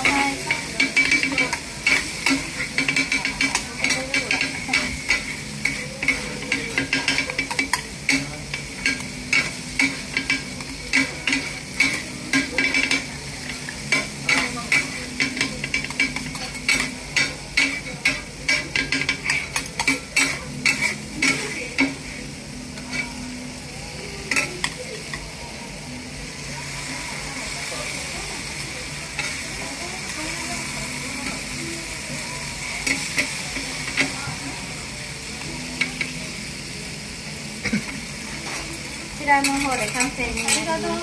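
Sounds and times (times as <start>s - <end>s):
metal spatulas clacking on griddle: 0.0s - 22.0s, 39.4s - 40.7s
food sizzling on griddle: 0.0s - 41.0s.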